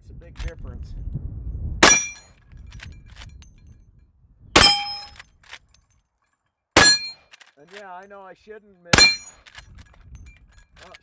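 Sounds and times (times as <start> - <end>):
rifle shots: 1.8 - 2.2, 6.8 - 7.2
steel target clang: 1.8 - 2.3, 4.6 - 5.2, 6.8 - 7.2, 9.0 - 9.4.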